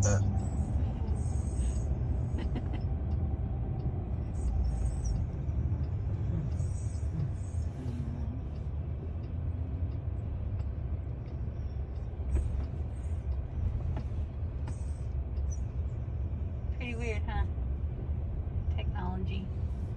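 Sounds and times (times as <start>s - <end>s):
car cabin road rumble: 0.0s - 19.9s.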